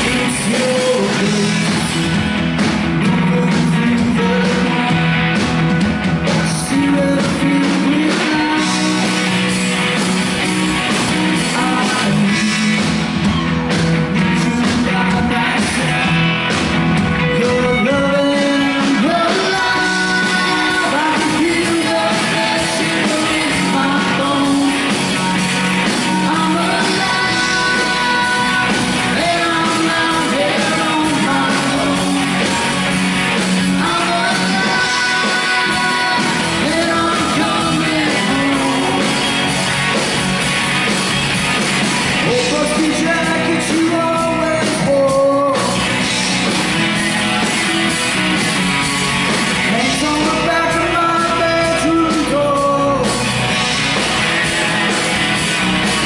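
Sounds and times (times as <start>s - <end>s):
person singing: 0.0s - 2.2s, 3.0s - 5.4s, 6.3s - 9.5s, 10.9s - 16.3s, 17.2s - 39.8s, 42.2s - 46.1s, 49.6s - 53.4s
live rock band playing: 0.0s - 56.0s.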